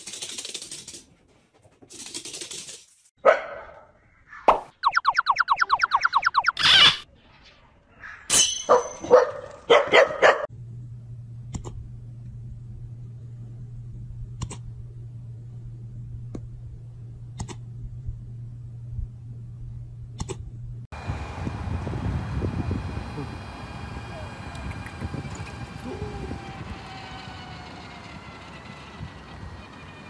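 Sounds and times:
dog barking: 3.2s - 4.0s, 8.7s - 10.5s
low hum: 10.5s - 30.0s.

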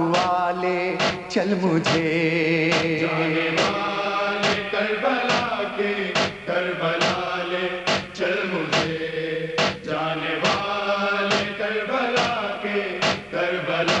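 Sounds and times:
chorus chanting wordless refrain: 0.0s - 14.0s
chest-beating slaps: 6.2s - 6.4s, 7.9s - 8.2s, 8.8s - 9.0s, 9.6s - 9.9s, 13.0s - 13.3s.

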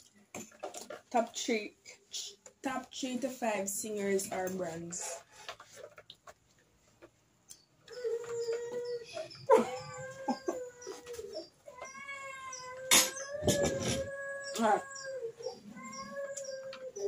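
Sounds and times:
animal howling: 7.9s - 17.0s.

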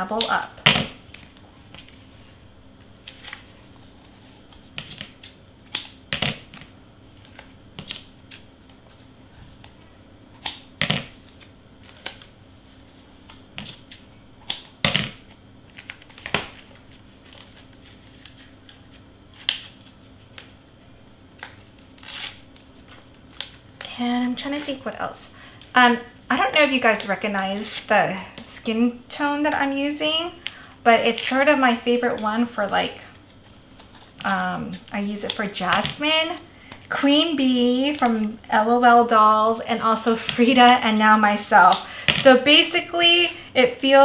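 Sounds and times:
faint steady hum: 0.0s - 44.0s
paper rustling: 11.2s - 20.6s.

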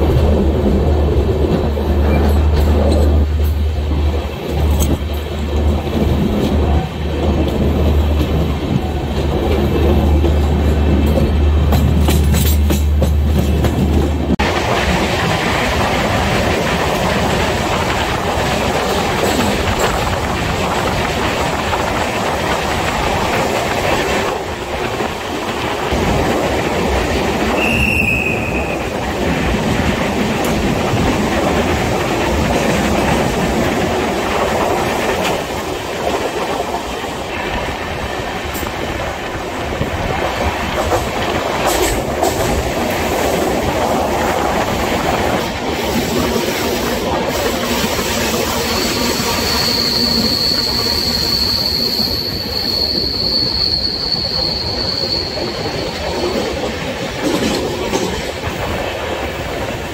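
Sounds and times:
train wheels clattering on track: 0.0s - 59.9s
high squeal: 48.6s - 56.4s.

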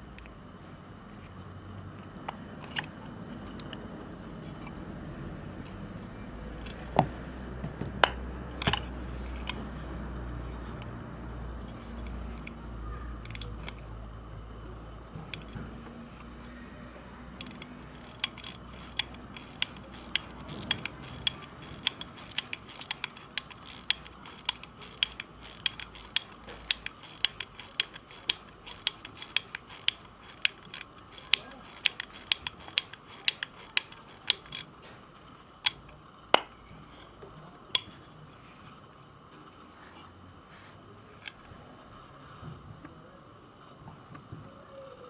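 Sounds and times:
watch crown ratchet clicking: 13.2s - 13.9s, 17.3s - 36.0s.

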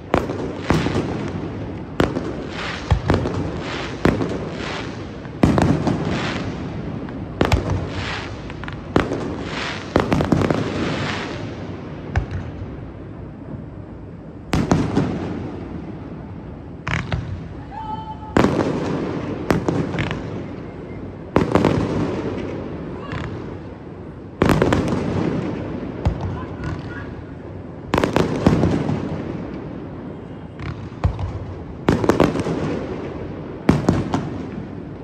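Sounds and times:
fireworks booming: 0.0s - 35.0s.

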